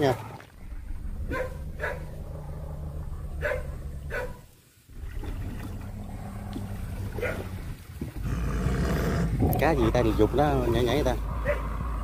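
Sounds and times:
dog barks: 1.3 - 2.1, 3.4 - 4.5, 7.2 - 7.4, 11.4 - 11.7.

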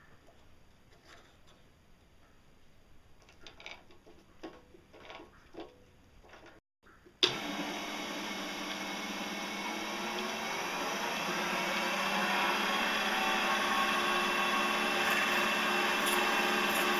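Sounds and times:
lathe motor running: 7.2 - 16.9.

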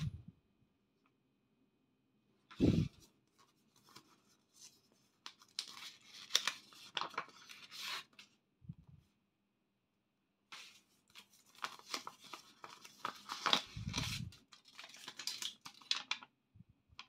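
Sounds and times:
paper crinkling and rustling: 2.5 - 8.4, 10.5 - 16.4.

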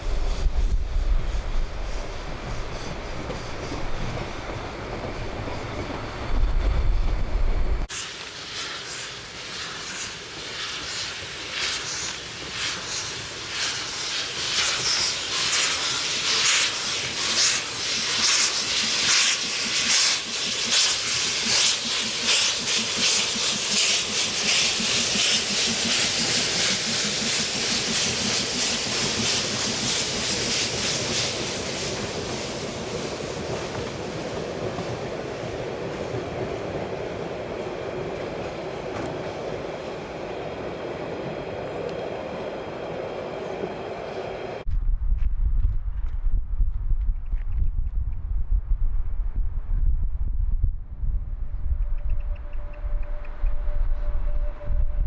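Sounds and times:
steam locomotive exhaust chuffs: 0.0 - 36.2
train rumbling: 0.0 - 55.0
hiss of steam: 7.8 - 36.3.

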